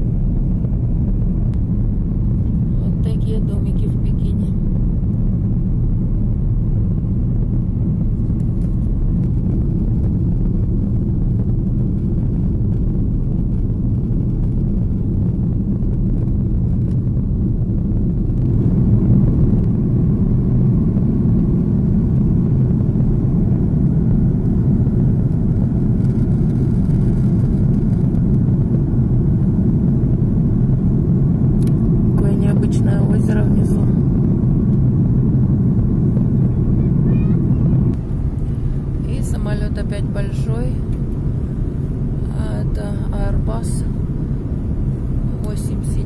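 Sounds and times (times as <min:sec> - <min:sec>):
jet engines rumbling: 0:00.0 - 0:46.0
rushing air: 0:33.9 - 0:42.4.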